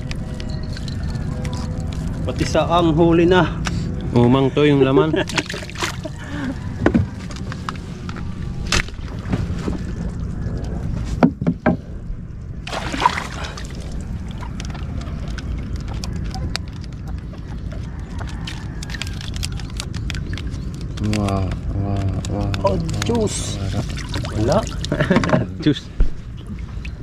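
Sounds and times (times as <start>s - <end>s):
boat engine low rumble: 0.0s - 27.0s
knocks: 11.2s - 11.8s
water rushing: 12.5s - 16.0s.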